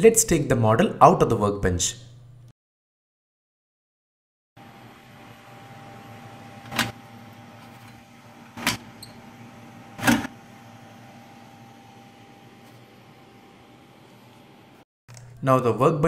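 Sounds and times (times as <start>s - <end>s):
machine hum: 4.6s - 15.4s.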